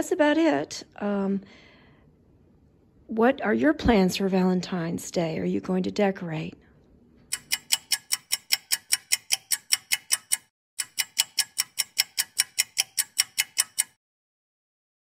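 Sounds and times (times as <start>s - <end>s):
clock ticking fast: 7.3s - 14.0s.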